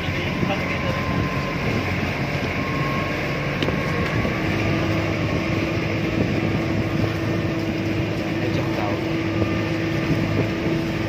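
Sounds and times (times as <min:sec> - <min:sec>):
boat engine running: 0:00.0 - 0:11.0
steady higher hum: 0:00.0 - 0:11.0
water noise: 0:00.0 - 0:11.0
wind noise: 0:00.0 - 0:11.0.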